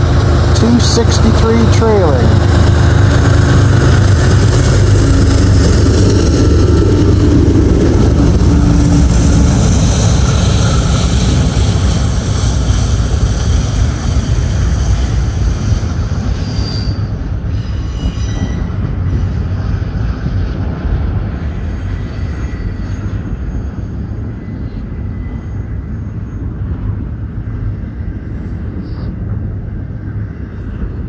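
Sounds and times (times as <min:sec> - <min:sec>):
locomotive engine: 0:00.0 - 0:16.4
train wheels rumbling on rail: 0:00.0 - 0:31.0
high wheel squeals: 0:16.4 - 0:19.3.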